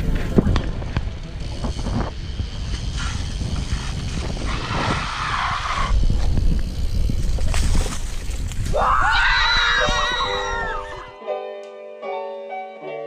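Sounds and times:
wind buffeting microphone: 0.0 - 10.0
hissing rush: 1.5 - 7.0.

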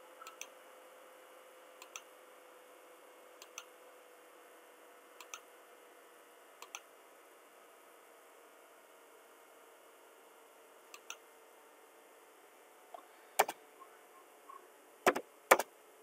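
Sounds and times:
computer mouse button clicks: 0.2 - 0.5, 1.8 - 2.1, 3.4 - 3.7, 5.2 - 5.4, 6.6 - 6.8, 11.0 - 11.2.

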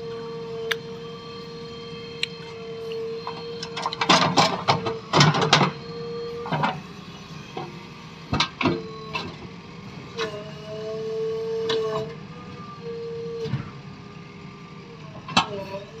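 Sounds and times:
diesel engine whining: 0.0 - 16.0.

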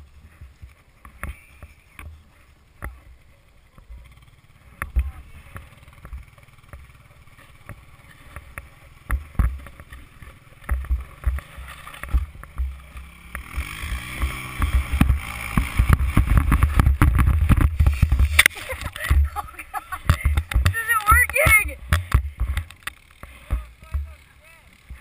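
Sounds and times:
atv engine revving: 0.0 - 25.0
sled bumping over snow: 6.8 - 25.0.

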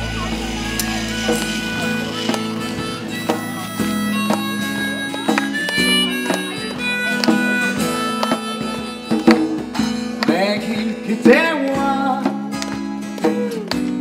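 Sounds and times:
harmonica melody: 0.0 - 10.2
djembe played by hand: 0.0 - 10.6
acoustic guitars: 0.0 - 14.0.

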